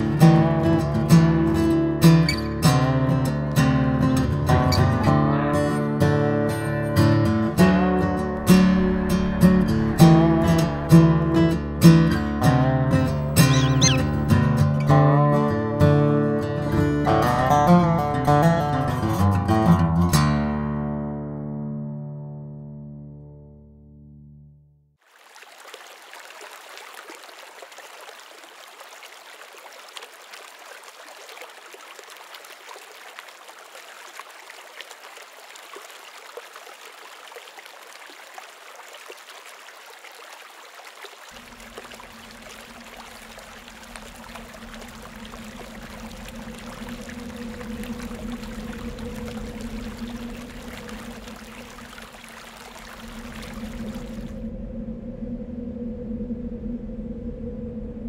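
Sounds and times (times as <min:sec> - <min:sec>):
water trickling: 0:25.0 - 0:54.4
low steady hum: 0:41.4 - 0:58.0.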